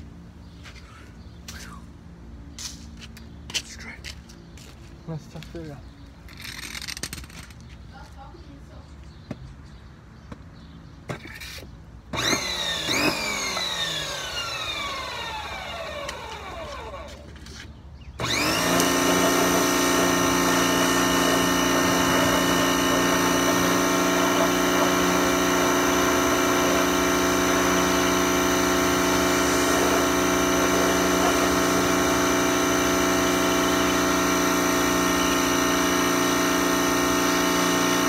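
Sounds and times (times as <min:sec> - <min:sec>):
pressure washer motor whine: 0:12.1 - 0:38.0
water spraying on wheel: 0:21.2 - 0:38.0.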